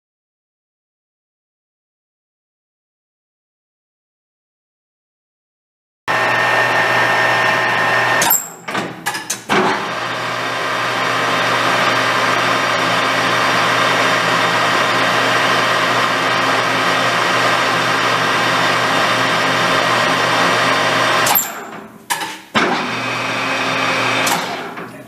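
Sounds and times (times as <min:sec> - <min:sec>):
lathe running: 0:06.1 - 0:08.7, 0:09.6 - 0:21.8, 0:22.6 - 0:24.8.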